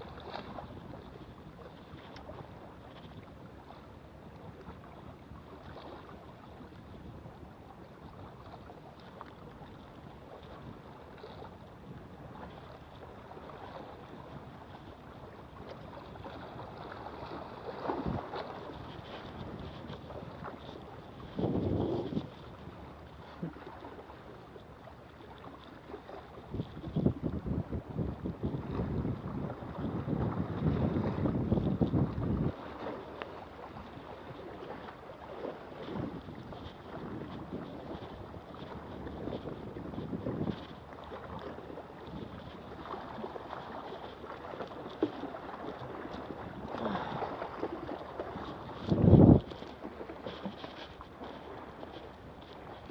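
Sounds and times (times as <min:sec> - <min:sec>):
water lapping against rocks: 0:12.3 - 0:52.9
wind buffeting microphone: 0:16.0 - 0:23.6, 0:26.4 - 0:33.0, 0:33.7 - 0:44.0, 0:44.9 - 0:50.6.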